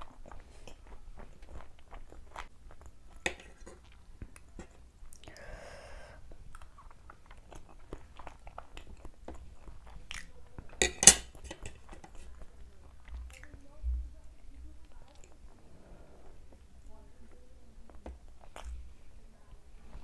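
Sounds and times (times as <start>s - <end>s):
close-miked chewing: 0.0s - 5.6s, 6.2s - 20.0s
wet mouth clicks: 17.9s - 18.8s.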